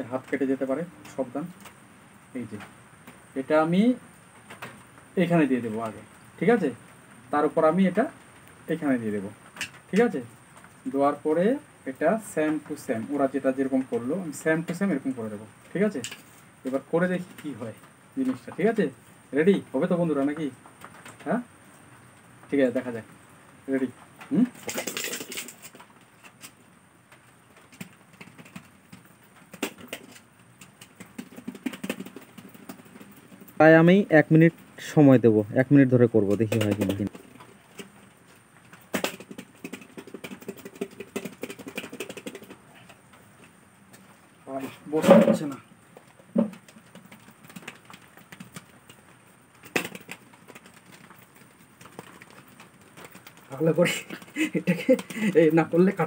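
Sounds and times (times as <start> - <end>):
objects rattling in shaken bowls: 23.8 - 26.5, 27.6 - 35.1, 35.8 - 42.9, 44.9 - 56.0
objects knocking inside bowls: 24.5 - 25.8, 27.6 - 33.6, 38.7 - 42.7, 46.2 - 49.0.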